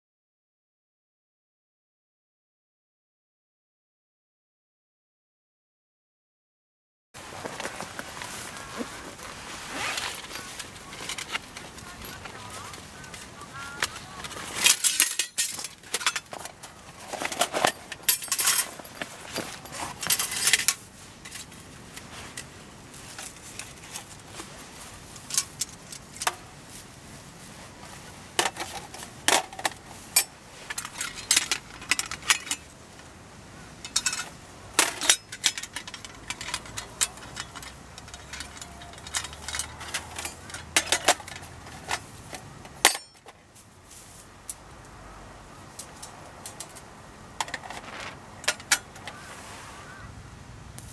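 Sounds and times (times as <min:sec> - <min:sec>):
metal plates clinking and scraping: 0:07.6 - 0:21.6, 0:25.1 - 0:26.5, 0:28.4 - 0:32.8, 0:33.8 - 0:43.4, 0:45.7 - 0:49.3.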